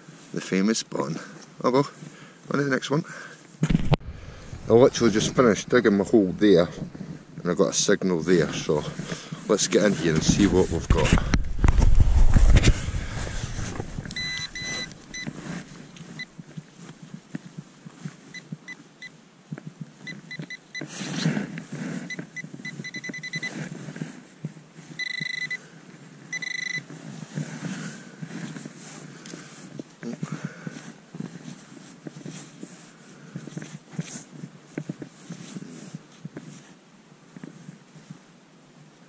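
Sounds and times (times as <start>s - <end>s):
soil crumbling and rustling: 3.6s - 17.3s
pinpointer beeping: 14.0s - 15.3s, 22.1s - 23.5s, 25.0s - 25.6s, 26.3s - 26.8s.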